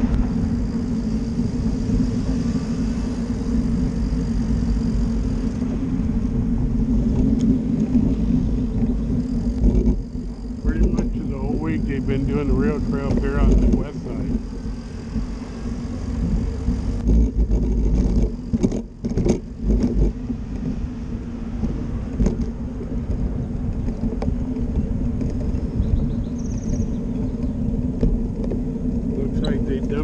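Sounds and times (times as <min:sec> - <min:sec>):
bicycle tyres rolling over pavement: 0:00.0 - 0:30.0
knocks from pavement bumps: 0:16.4 - 0:20.8.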